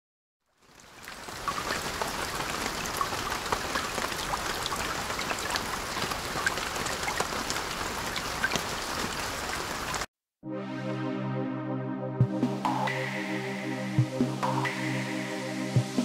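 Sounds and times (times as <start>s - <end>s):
drips and small splashes: 0.4s - 10.1s
water rushing: 0.7s - 10.1s.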